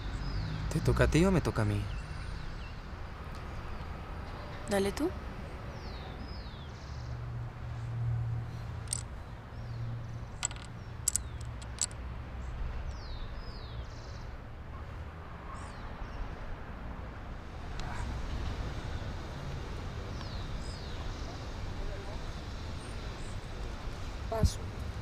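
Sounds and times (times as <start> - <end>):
small birds chirping: 8.5 - 14.4, 20.1 - 24.6
domino tiles clicking on table: 10.4 - 12.0.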